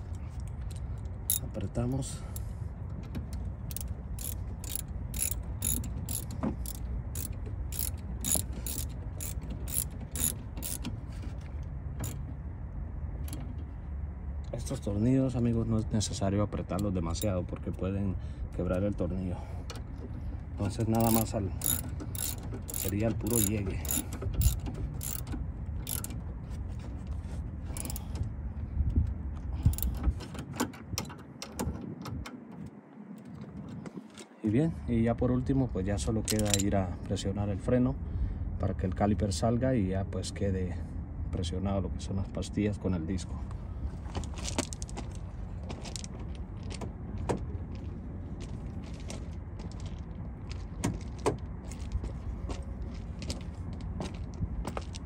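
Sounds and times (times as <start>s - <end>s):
socket ratchet clicking: 0.7s - 1.6s, 3.3s - 10.9s, 20.9s - 26.2s, 27.8s - 28.1s, 29.7s - 30.0s, 36.3s - 36.7s
metal clinking: 20.9s - 26.1s, 36.3s - 36.7s.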